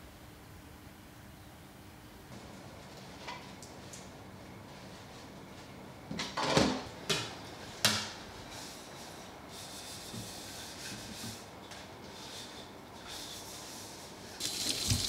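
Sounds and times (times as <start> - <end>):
water running from tap: 14.4 - 15.0.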